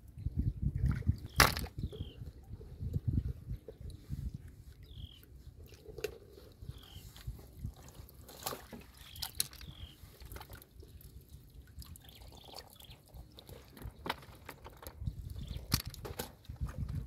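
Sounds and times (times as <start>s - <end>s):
water dripping and trickling: 5.6s - 14.2s.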